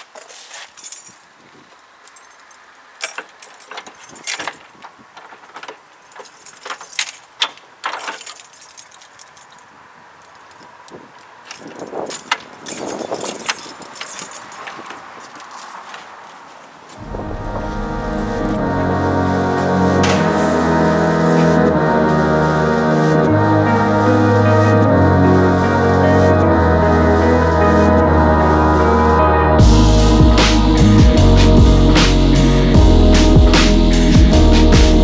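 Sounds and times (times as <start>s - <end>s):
keys jangling in a lock: 0.1s - 1.3s, 2.0s - 15.2s, 15.8s - 16.2s.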